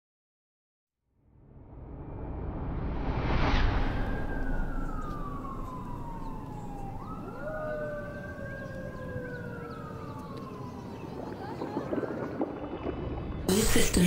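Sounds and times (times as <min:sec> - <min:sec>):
whoosh: 0:01.2 - 0:07.0
low rumble: 0:01.2 - 0:14.0
siren wailing: 0:03.6 - 0:13.5.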